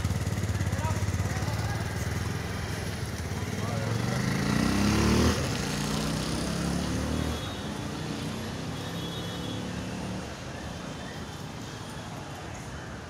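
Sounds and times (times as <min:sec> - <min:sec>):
motor vehicle engine running: 0:00.0 - 0:07.1.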